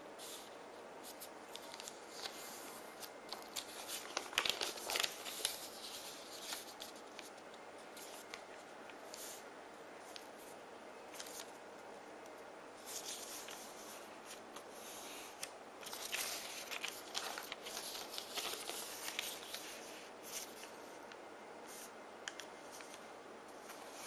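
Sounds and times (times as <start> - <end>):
faint steady hiss: 0.0 - 24.0
paper rustling and crinkling: 0.2 - 9.4, 10.0 - 11.6, 12.8 - 20.9.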